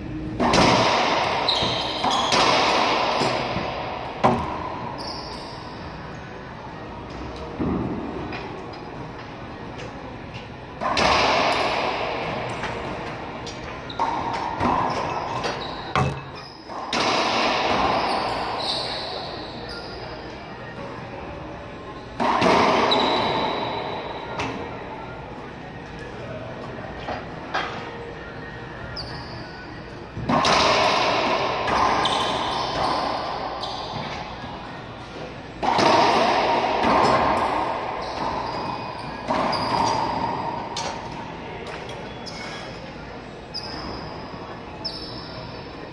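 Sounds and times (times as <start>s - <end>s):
racquetball bouncing and struck: 0.0s - 5.9s, 10.8s - 19.9s, 22.2s - 24.7s, 30.2s - 34.6s, 35.2s - 42.0s
sneakers squeaking: 0.0s - 21.0s, 21.6s - 25.2s, 27.0s - 45.9s.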